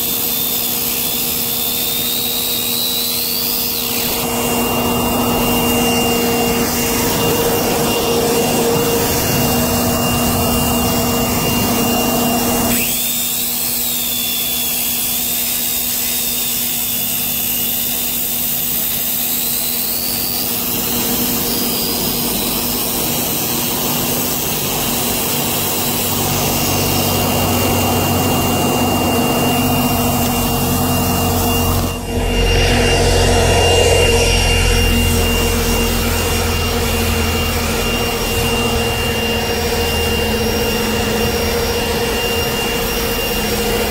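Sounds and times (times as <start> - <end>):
circular saw cutting asphalt: 0.0 - 43.9
machine drone: 0.0 - 43.9.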